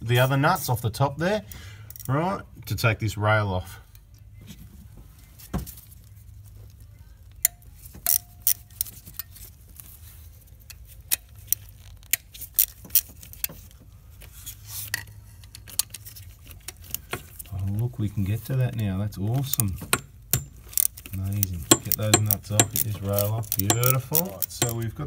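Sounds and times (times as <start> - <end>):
socket wrench metallic clicks: 21.7 - 24.8.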